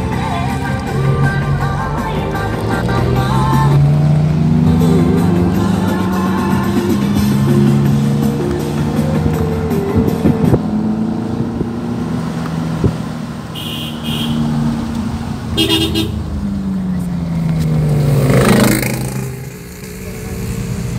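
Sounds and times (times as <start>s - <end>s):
car engine running: 0.0s - 18.3s
car horn toots: 13.5s - 14.6s, 15.5s - 16.3s.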